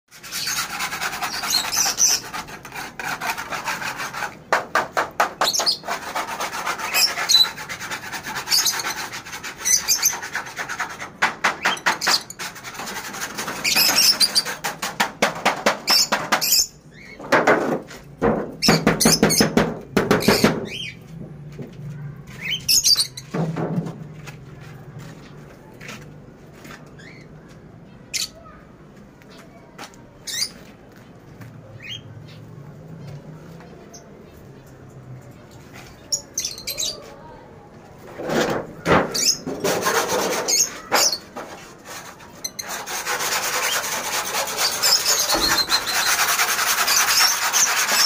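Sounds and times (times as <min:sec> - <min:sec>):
small birds chirping: 0:00.2 - 0:02.5, 0:05.2 - 0:10.6, 0:22.2 - 0:23.3, 0:29.2 - 0:37.5, 0:42.4 - 0:48.0
rapid rattling bird notes: 0:38.8 - 0:41.4.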